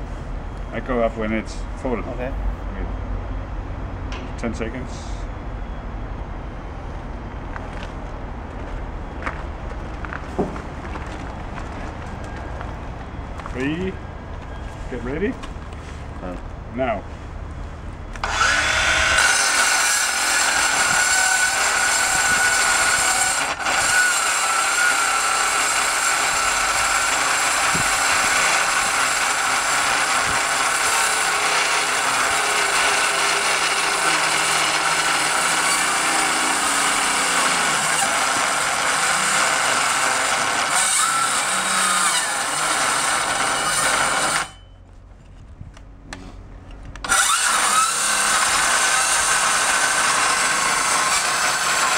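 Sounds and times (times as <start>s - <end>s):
circular saw cutting metal: 18.2s - 44.7s, 47.0s - 51.9s.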